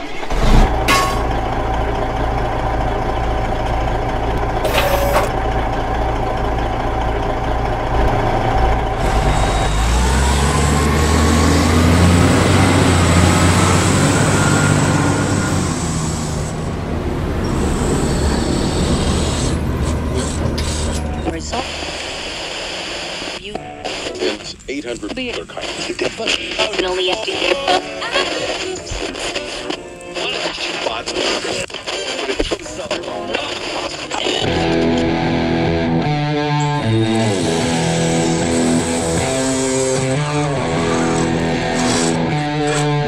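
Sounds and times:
simulated diesel engine: 0.0 - 23.8, 32.7 - 43.0.

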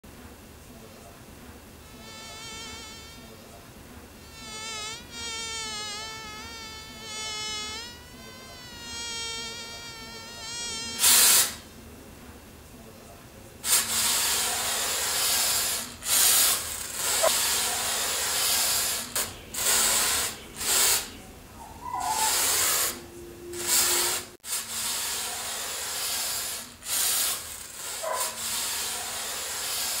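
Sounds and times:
flying insect buzzing: 1.8 - 3.4, 4.2 - 11.6, 15.3 - 17.8
aerosol spray can hissing: 11.0 - 11.6, 13.7 - 21.1.

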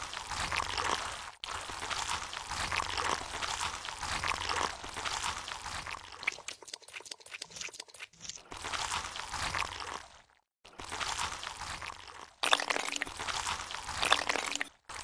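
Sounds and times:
crackling squelching clicks: 6.2 - 8.4.

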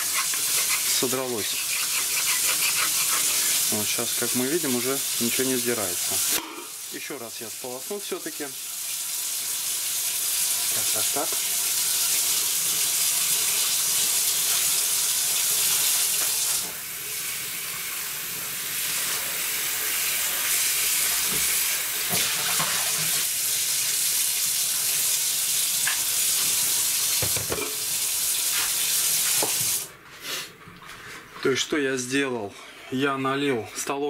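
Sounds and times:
tap water running into pot: 0.0 - 7.1, 7.7 - 19.1, 19.7 - 29.9.

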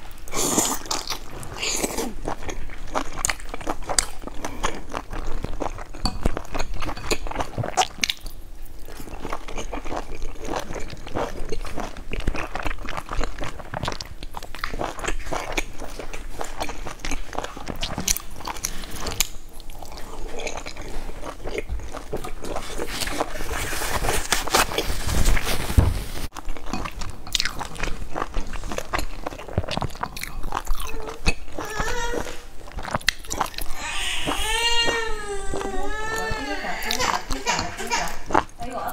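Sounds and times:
chewing with wet smacking: 0.1 - 23.4, 26.3 - 31.9, 32.6 - 33.8.

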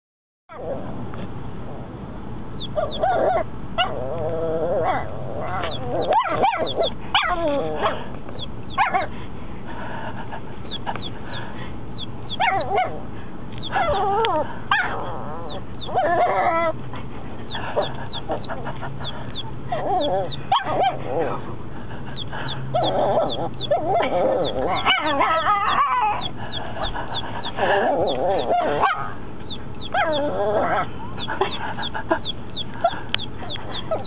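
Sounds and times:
steady low hum: 0.5 - 34.0
puppy yipping and barking: 2.6 - 4.2, 4.8 - 9.1, 12.3 - 13.0, 13.6 - 16.8, 17.5 - 21.3, 22.2 - 34.0.

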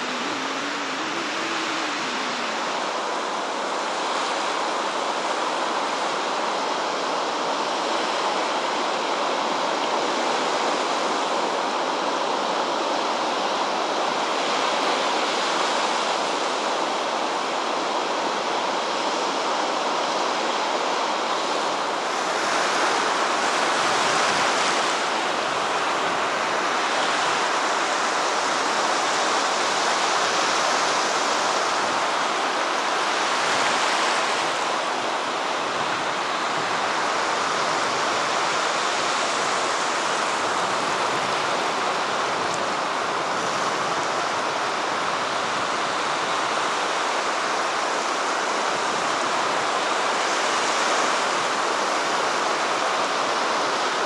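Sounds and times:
rough sea surf breaking: 0.0 - 54.0.

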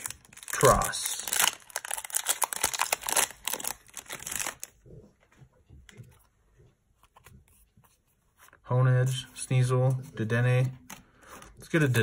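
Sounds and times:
foil wrapper crinkling and tearing: 0.0 - 4.7.

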